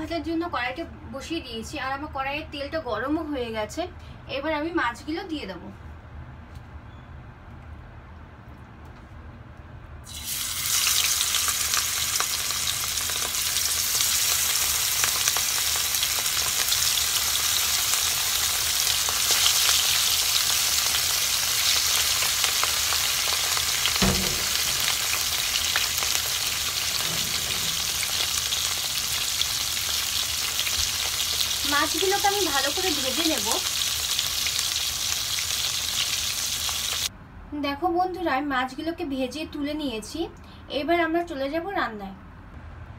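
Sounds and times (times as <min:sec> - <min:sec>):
fish sizzling in hot oil: 0:10.1 - 0:37.1
brief knock: 0:24.0 - 0:24.9.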